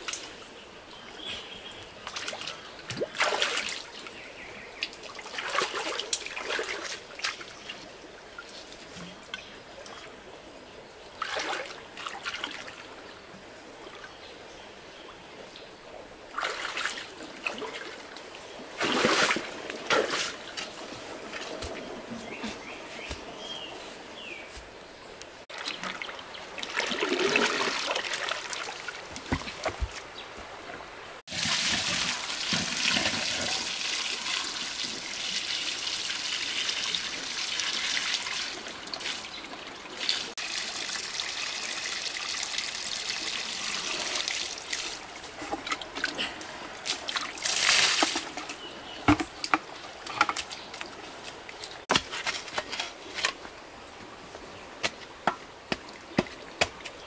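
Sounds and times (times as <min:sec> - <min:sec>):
water splashing and trickling: 0:01.1 - 0:10.2, 0:11.1 - 0:14.2, 0:16.2 - 0:24.0, 0:25.4 - 0:57.0
sharp splashes or knocks: 0:18.8 - 0:20.4.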